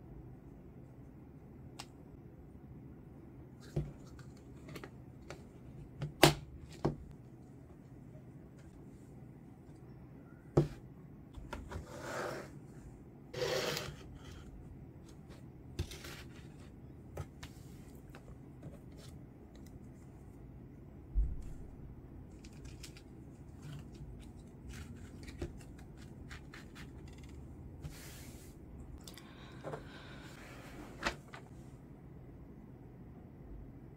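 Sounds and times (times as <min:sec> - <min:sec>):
rustling scrapes: 0:23.4 - 0:28.6.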